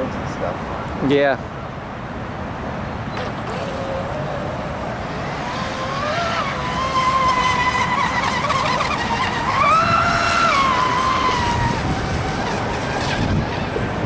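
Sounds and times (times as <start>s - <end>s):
boat motor high whine: 2.9s - 14.0s.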